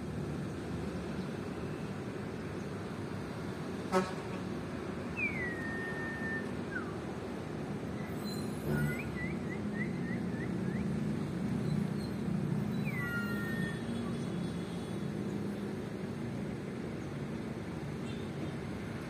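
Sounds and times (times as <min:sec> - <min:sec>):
bird chirps and whistle: 0:05.1 - 0:07.0, 0:08.2 - 0:11.0, 0:11.6 - 0:14.0.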